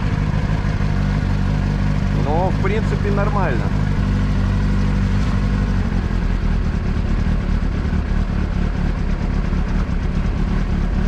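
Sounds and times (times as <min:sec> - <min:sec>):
motorcycle engine idling: 0:00.0 - 0:11.0.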